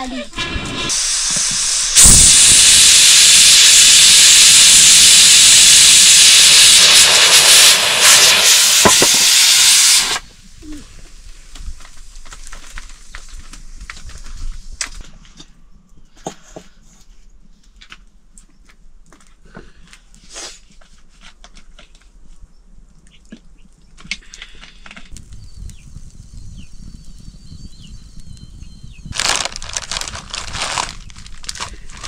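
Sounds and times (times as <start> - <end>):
food hissing on fire: 0.0 - 15.0, 25.1 - 32.0.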